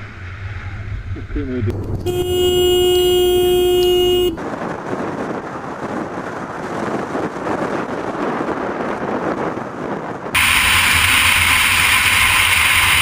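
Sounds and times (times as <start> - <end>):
motorcycle wind and road noise: 0.0 - 13.0
vehicle horn: 1.4 - 4.4.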